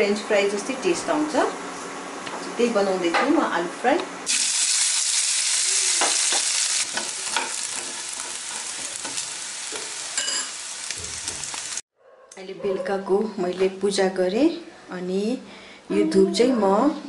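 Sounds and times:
potatoes sizzling in hot oil: 0:04.3 - 0:11.8
spatula scraping a pan: 0:06.9 - 0:10.6.

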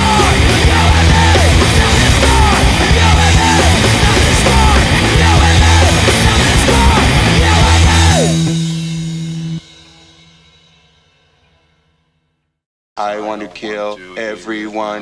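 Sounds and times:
loud hardcore punk song: 0:00.0 - 0:10.0.

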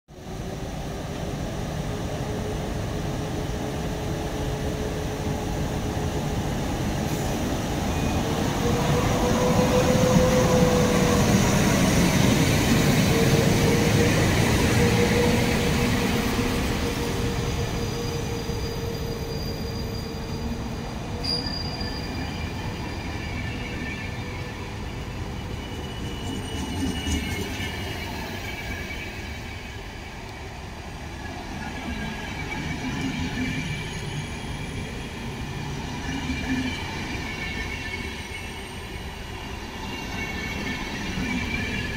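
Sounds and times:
train rumbling past: 0:00.2 - 0:41.9
thin high squeals: 0:21.2 - 0:24.1, 0:24.9 - 0:28.0.

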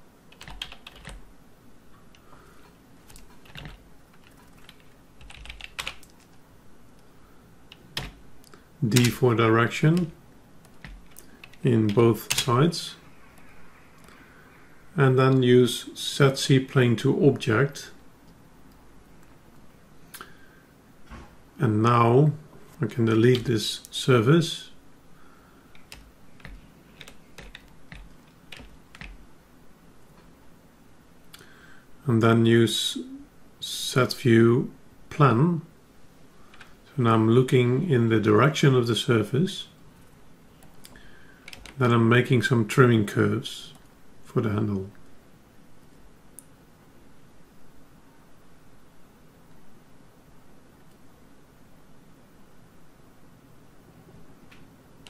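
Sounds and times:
computer keyboard typing: 0:00.3 - 0:01.2, 0:03.1 - 0:06.4, 0:07.7 - 0:08.2, 0:10.0 - 0:12.5, 0:25.7 - 0:29.2, 0:40.6 - 0:41.8.

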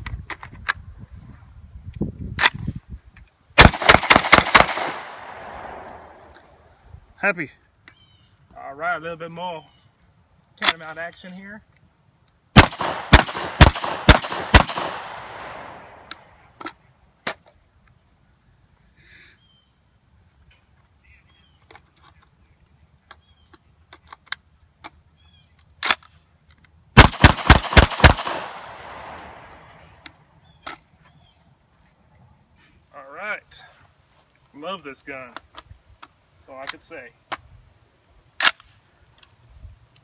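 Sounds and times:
shotgun shots echoing: 0:03.6 - 0:06.3, 0:12.6 - 0:16.4, 0:27.0 - 0:29.9
magazine handling clicks: 0:10.4 - 0:16.8, 0:23.9 - 0:30.8, 0:38.4 - 0:39.3.

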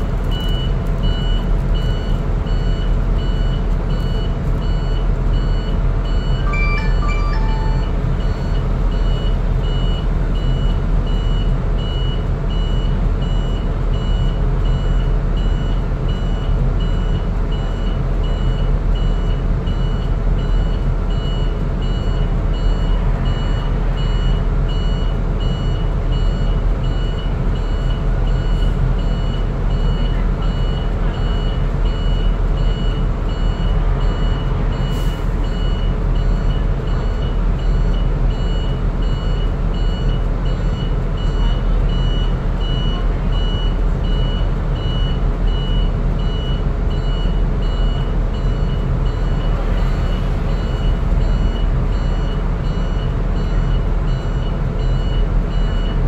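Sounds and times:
bus engine rumbling: 0:00.0 - 0:56.0
high electronic beep: 0:05.4 - 0:09.9.

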